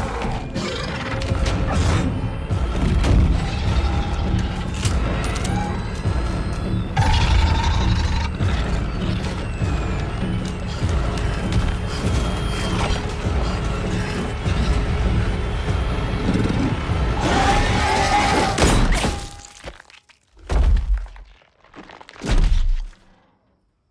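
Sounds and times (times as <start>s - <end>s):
tense film music: 0.0s - 19.9s
shrill creature screech: 17.2s - 18.6s.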